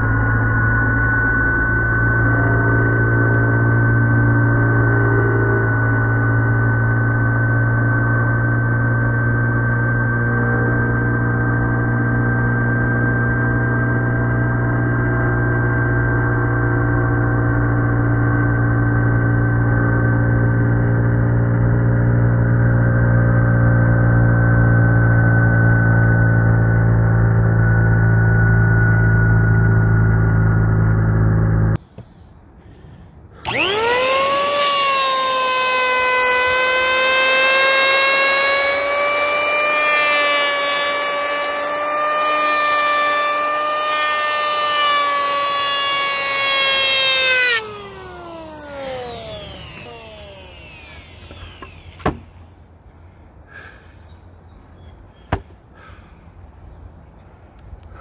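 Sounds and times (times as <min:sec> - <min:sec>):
electric hand planer running: 0:33.4 - 0:52.5.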